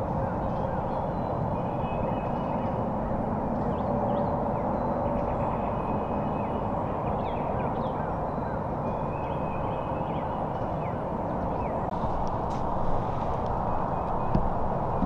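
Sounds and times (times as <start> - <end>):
low background rush: 0.0 - 15.0
small birds chirping: 0.1 - 12.0.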